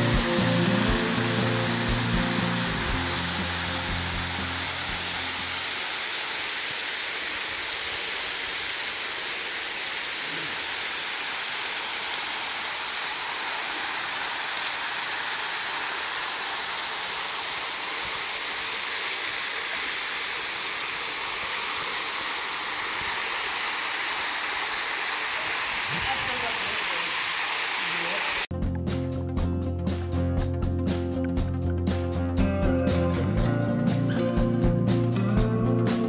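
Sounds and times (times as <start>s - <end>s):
waterfall splashing into pool: 0.0s - 28.5s.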